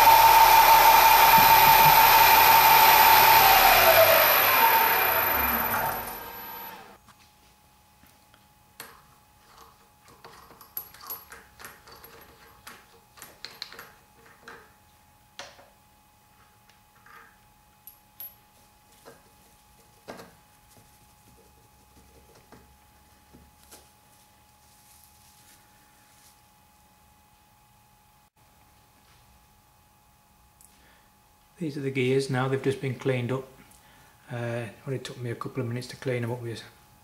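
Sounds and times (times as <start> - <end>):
milling machine spindle running down: 0.0 - 7.0.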